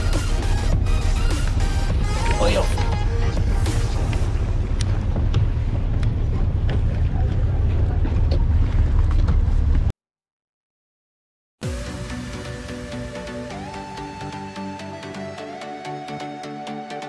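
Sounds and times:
wind buffeting microphone: 0:03.0 - 0:09.9.

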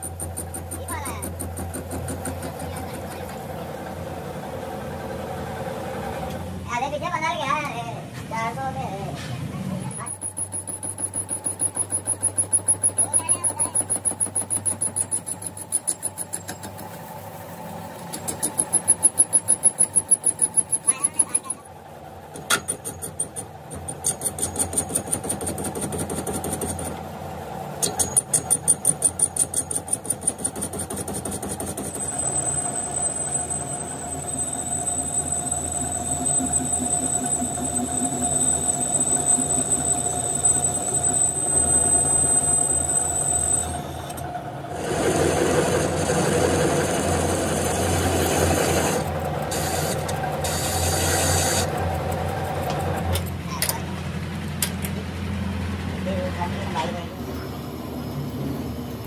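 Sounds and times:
metal lathe cutting steel: 0:27.8 - 0:53.0
high-pitched cutting squeal: 0:31.2 - 0:51.8.

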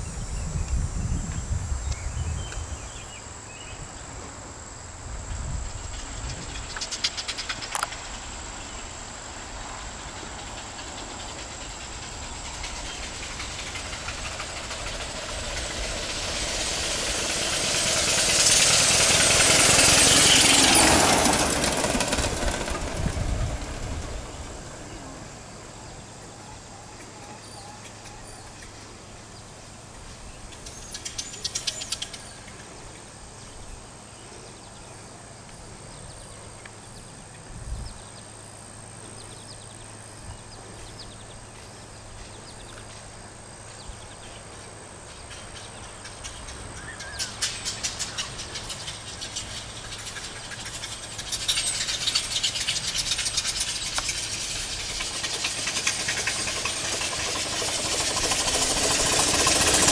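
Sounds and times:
steam hiss: 0:03.9 - 0:26.7, 0:45.2 - 0:59.9
steam motorcycle exhaust chuffing: 0:05.0 - 0:24.5, 0:45.2 - 0:59.9.

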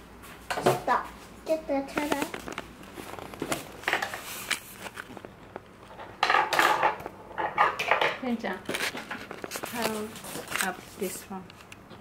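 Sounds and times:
plastic toys clattering on table: 0:05.9 - 0:10.8.

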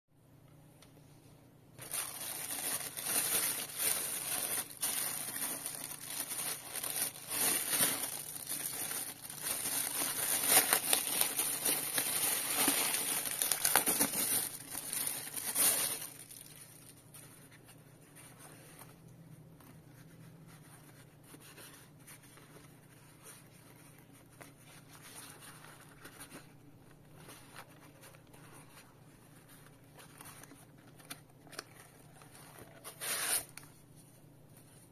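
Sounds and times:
plastic bag crinkling and tearing: 0:01.8 - 0:17.1.

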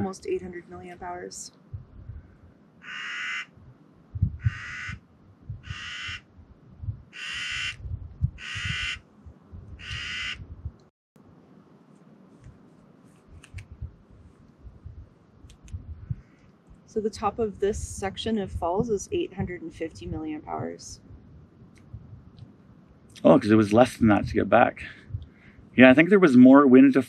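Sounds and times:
crow cawing: 0:02.8 - 0:03.5, 0:04.4 - 0:05.0, 0:05.6 - 0:06.2, 0:07.2 - 0:07.8, 0:08.4 - 0:09.0, 0:09.8 - 0:10.4.

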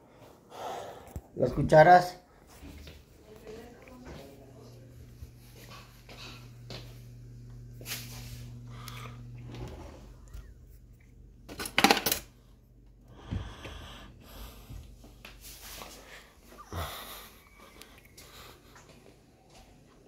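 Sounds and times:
knocks and handling noise: 0:11.5 - 0:12.3.

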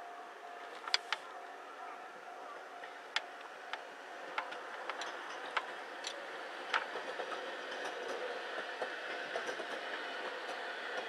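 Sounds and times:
electric train rolling past: 0:00.0 - 0:11.0
wheels clicking over rail joints: 0:02.8 - 0:11.0.

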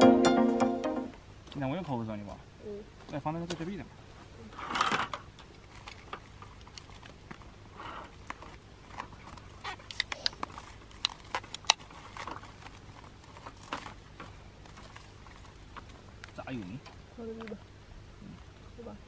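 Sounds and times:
rustling of handled objects: 0:02.9 - 0:17.6.

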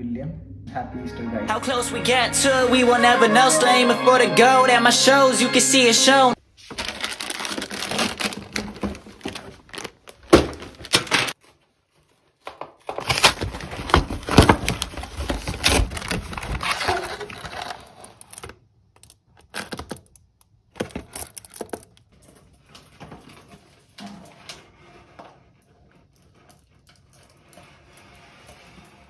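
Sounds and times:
plastic bag crinkling: 0:06.6 - 0:11.4, 0:12.8 - 0:20.1, 0:20.8 - 0:22.2
cardboard rustling and scraping: 0:06.6 - 0:18.5, 0:20.8 - 0:29.0.

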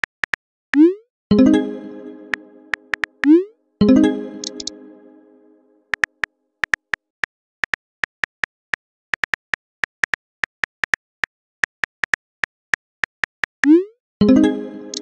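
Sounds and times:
phone keyboard clicks: 0:04.4 - 0:04.7, 0:05.9 - 0:07.0.

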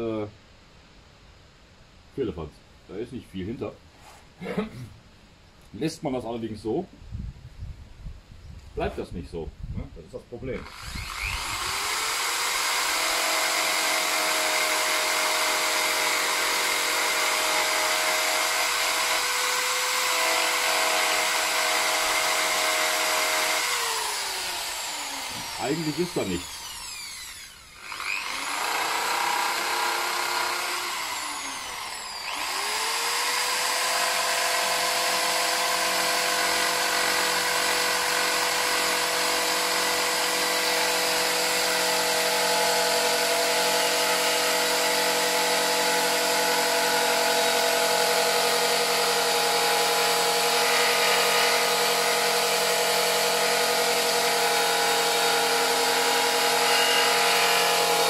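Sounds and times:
grinder grinding metal: 0:14.3 - 0:58.0.

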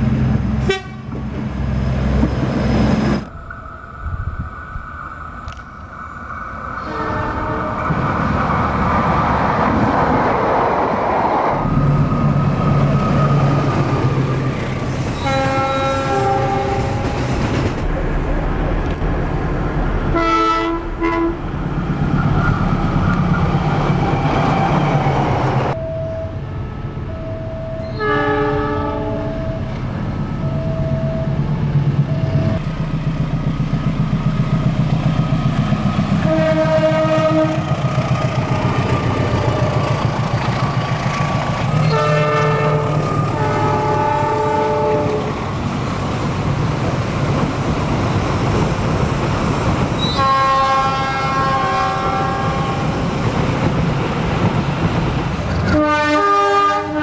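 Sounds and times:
train rolling on rails: 0:00.0 - 0:57.0
locomotive horn blasts: 0:00.6 - 0:01.2, 0:06.8 - 0:07.9, 0:15.2 - 0:17.0, 0:20.1 - 0:21.4, 0:27.8 - 0:29.5, 0:36.2 - 0:37.7, 0:41.8 - 0:45.3, 0:50.0 - 0:52.8, 0:55.6 - 0:57.0.

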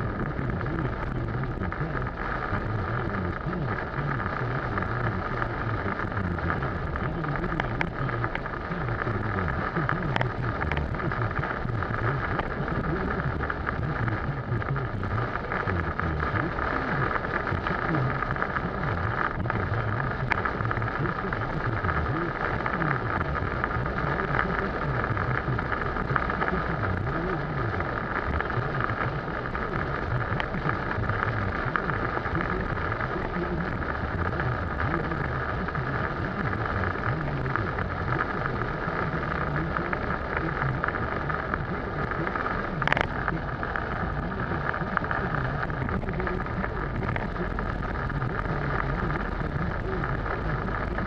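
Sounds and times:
heavy rain on car roof: 0:00.0 - 0:51.0
tyre and road noise: 0:00.0 - 0:51.0.

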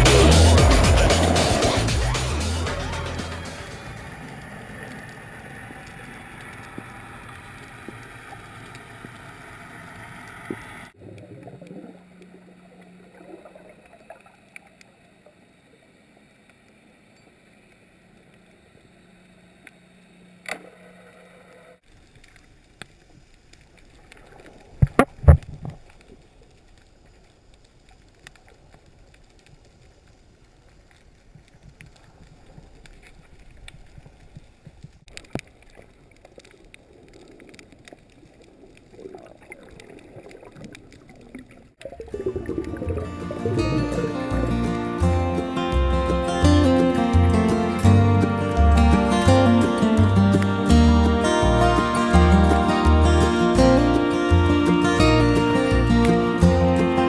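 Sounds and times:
muffled underwater water wash: 0:00.0 - 0:45.1.

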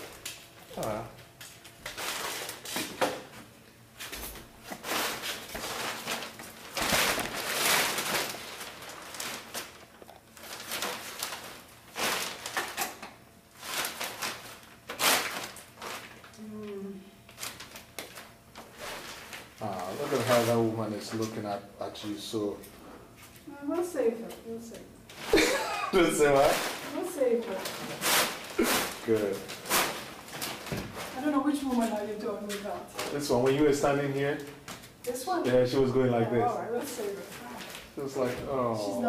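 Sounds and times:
canvas being cut rasping: 0:28.0 - 0:29.0.

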